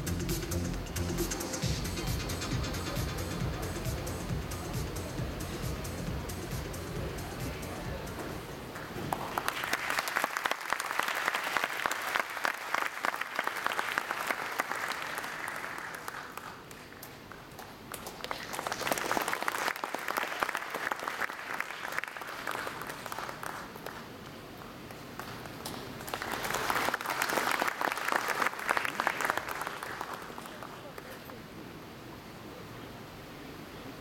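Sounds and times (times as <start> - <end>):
audience applauding: 8.7 - 31.3.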